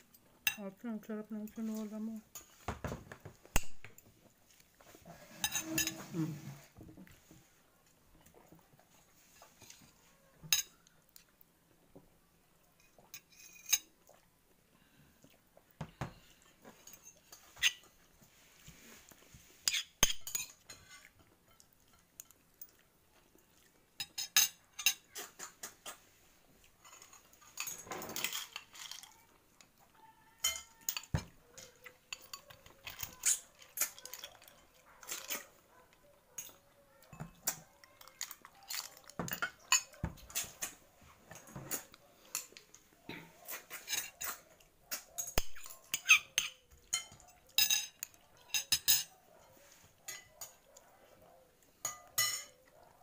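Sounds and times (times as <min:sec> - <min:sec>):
rustling scrape: 0:04.8 - 0:07.4
cutlery clinking on plates: 0:05.3 - 0:06.8, 0:09.4 - 0:10.8, 0:12.8 - 0:13.9, 0:19.6 - 0:22.4, 0:24.0 - 0:26.0, 0:26.8 - 0:29.1, 0:30.4 - 0:35.8, 0:36.4 - 0:50.6, 0:51.8 - 0:52.8.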